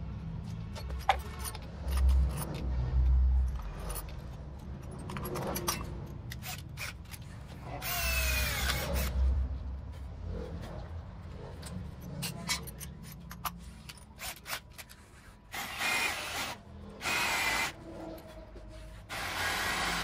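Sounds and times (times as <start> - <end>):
handling clicks and knocks: 0.4 - 6.4.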